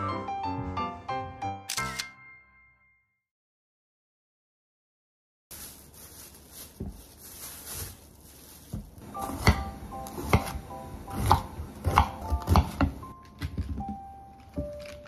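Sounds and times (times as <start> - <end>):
light background music: 9.0 - 15.0.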